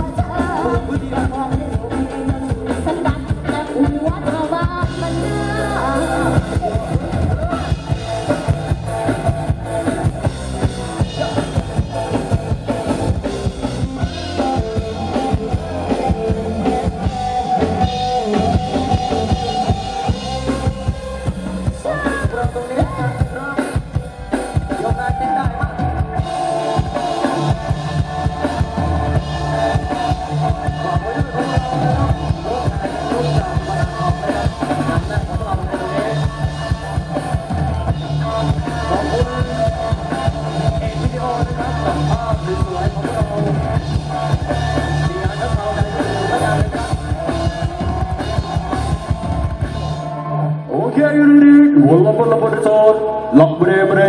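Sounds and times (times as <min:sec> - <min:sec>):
drum kit beat: 0:00.0 - 0:50.3
electronic keyboard melody: 0:00.0 - 0:54.0.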